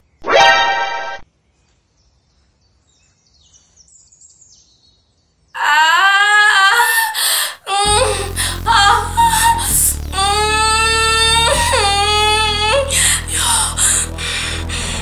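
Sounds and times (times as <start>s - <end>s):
woman wailing: 5.6s - 14.2s
low music bed: 7.7s - 15.0s.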